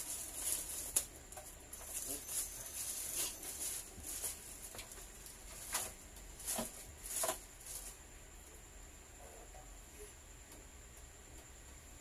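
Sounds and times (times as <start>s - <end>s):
plastic wrapping crinkling: 0.0s - 8.0s.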